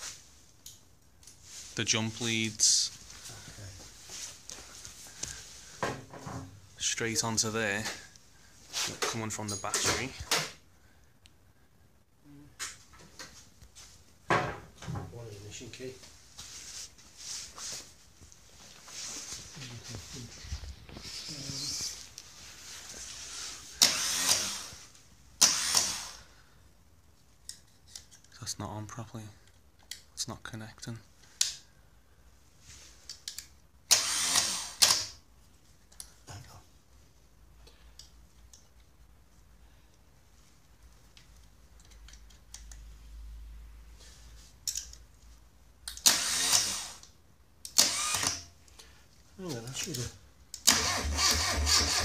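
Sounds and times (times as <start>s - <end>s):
engine starter motor whirring: 23.8s - 24.7s, 46.0s - 47.0s, 47.8s - 48.4s, 50.6s - 52.0s.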